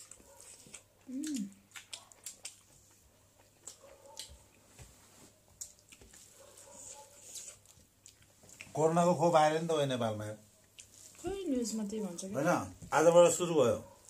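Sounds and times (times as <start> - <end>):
wet chewing sounds: 0.0 - 8.9, 10.5 - 11.7.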